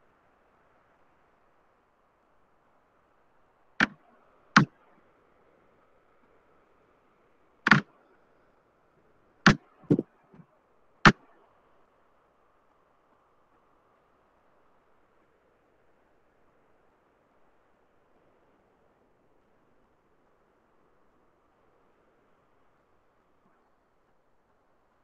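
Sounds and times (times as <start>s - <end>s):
faint steady hiss: 0.0s - 25.0s.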